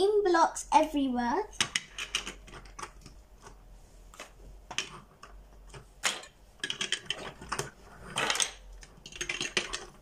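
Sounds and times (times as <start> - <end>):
plastic bricks clicking and clattering: 1.6 - 3.2, 4.2 - 10.0.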